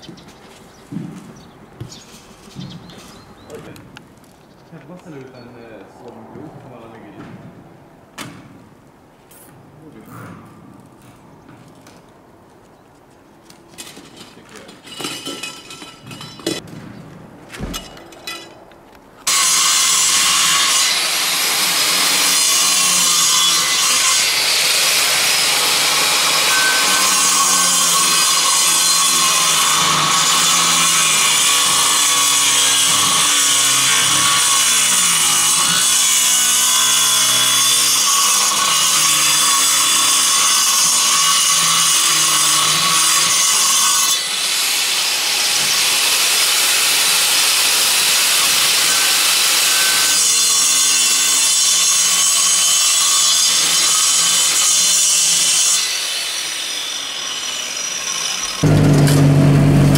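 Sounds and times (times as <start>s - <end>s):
angle grinder cutting: 19.2s - 59.9s.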